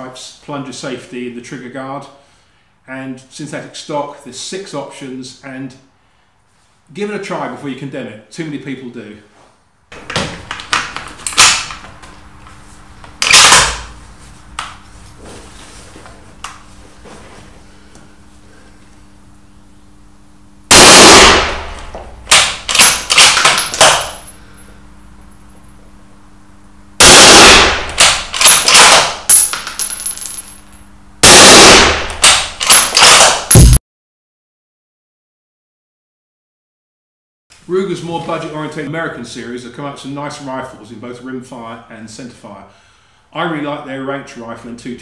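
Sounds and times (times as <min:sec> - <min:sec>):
gunshot echoes: 0:20.7 - 0:21.8, 0:27.0 - 0:28.0, 0:31.2 - 0:32.2
suppressed rifle shots: 0:20.7 - 0:24.0, 0:27.0 - 0:29.0.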